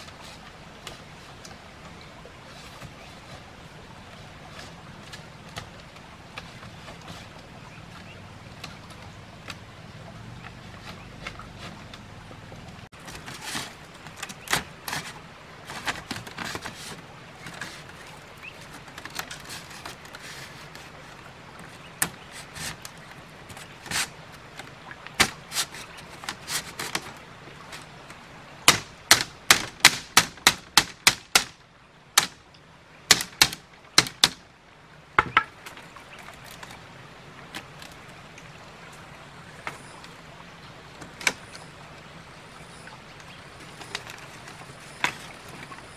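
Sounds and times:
bamboo strips clacking: 10.4s - 12.1s, 12.7s - 31.6s, 32.2s - 32.5s, 33.1s - 34.4s, 35.2s - 36.8s.

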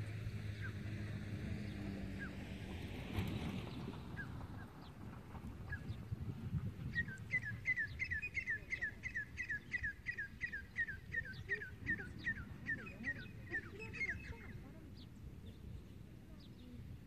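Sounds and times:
bird chirping: 6.9s - 16.8s.

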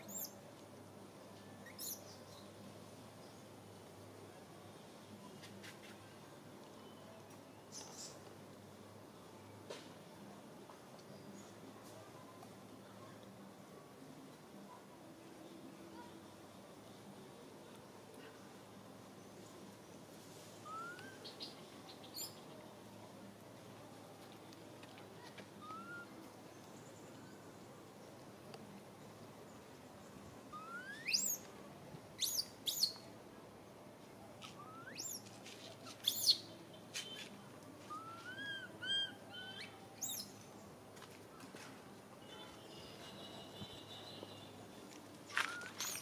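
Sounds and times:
infant monkey squealing: 37.9s - 40.2s.

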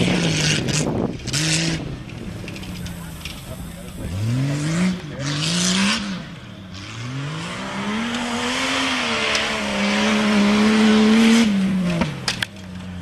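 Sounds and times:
tires spinning in dirt: 0.0s - 13.0s
engine revving hard: 3.9s - 12.2s.

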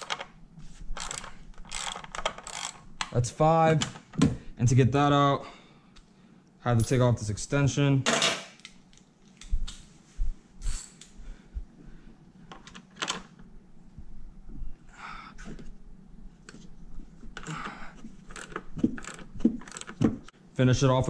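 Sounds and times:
tools clicking and knocking: 1.0s - 3.2s, 18.2s - 20.3s.

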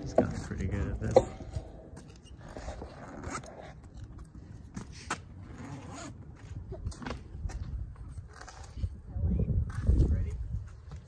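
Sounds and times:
zipper drawn: 5.4s - 6.2s.

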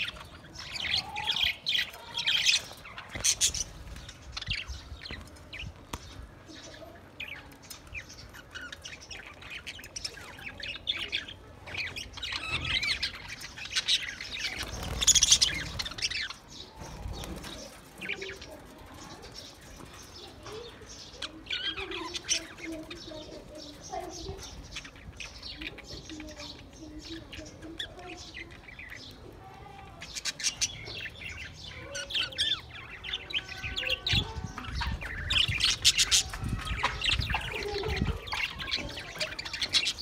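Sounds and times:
budgerigars chattering and chirping: 0.0s - 29.4s, 30.0s - 40.0s.

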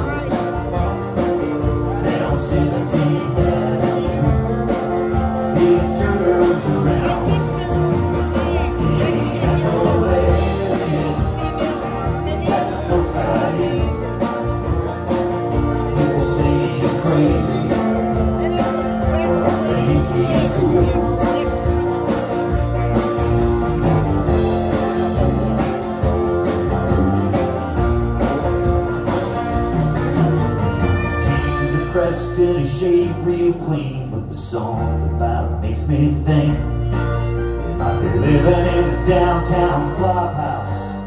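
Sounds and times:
person singing: 0.0s - 21.9s, 30.8s - 41.0s
guitar: 0.0s - 41.0s.

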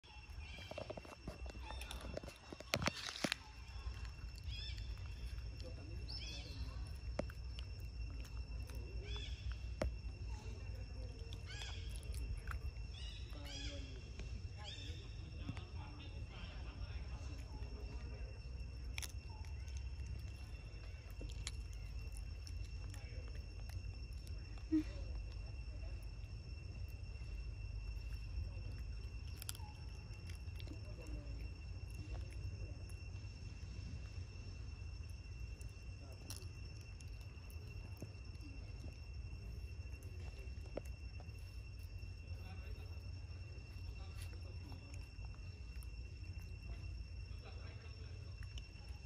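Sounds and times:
faint high whine: 0.0s - 49.0s
low outdoor rumble: 0.0s - 49.0s
high-pitched insect drone: 0.1s - 49.0s.

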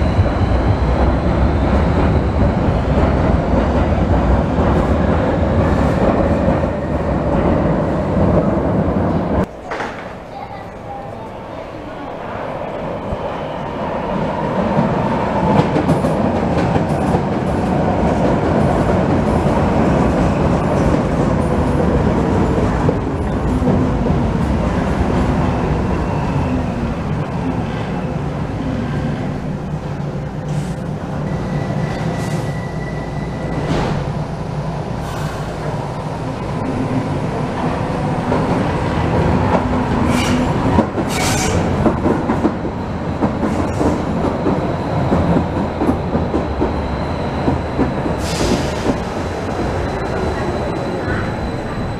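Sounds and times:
rumbling train wheels: 12.3s - 51.9s
metro train motor whine: 21.8s - 51.9s.

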